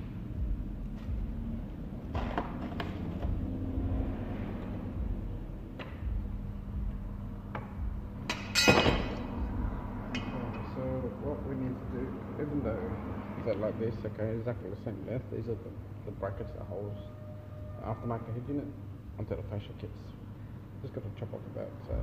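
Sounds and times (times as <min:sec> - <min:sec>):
tools clattering: 0:08.3 - 0:09.2.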